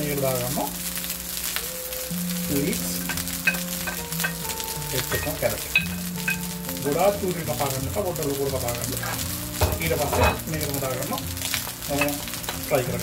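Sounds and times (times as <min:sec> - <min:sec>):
rice sizzling in a pan: 0:00.0 - 0:13.0
utensil clicking against pan: 0:03.0 - 0:06.6.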